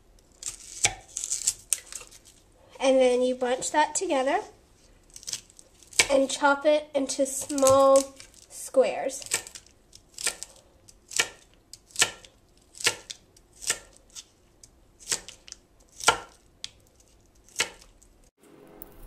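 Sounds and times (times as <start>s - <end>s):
knife chopping on cutting board: 11.1s - 13.9s, 16.0s - 16.4s, 17.6s - 17.9s.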